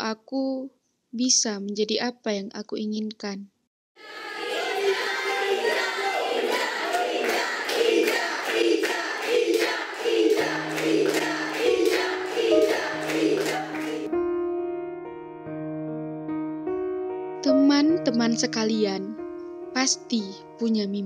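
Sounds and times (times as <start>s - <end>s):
girls chanting: 4.0s - 14.1s
rhythmic clapping: 4.5s - 14.1s
soft piano music: 10.3s - 21.0s.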